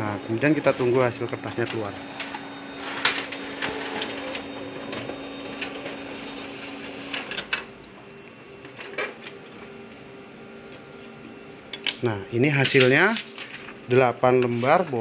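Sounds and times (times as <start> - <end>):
photocopier mechanical hum: 0.0 - 15.0
paper feeding clicks: 12.6 - 15.0.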